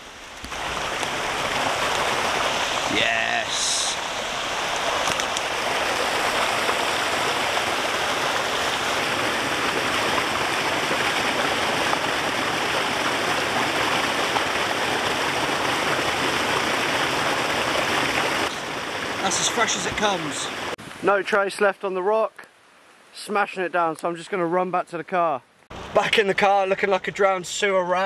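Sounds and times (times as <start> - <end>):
stream rushing over rocks: 0.0 - 22.0.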